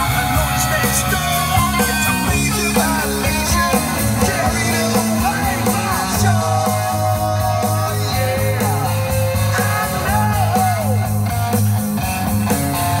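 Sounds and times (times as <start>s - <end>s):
rock music over car speakers: 0.0s - 13.0s.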